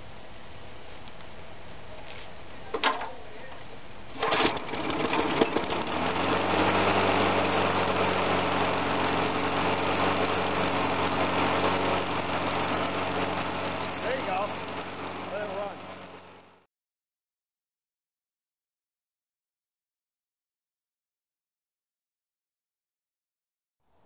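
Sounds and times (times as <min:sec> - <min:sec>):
lawn mower engine running: 0:04.0 - 0:16.6
starter cord pulls: 0:04.2 - 0:06.0.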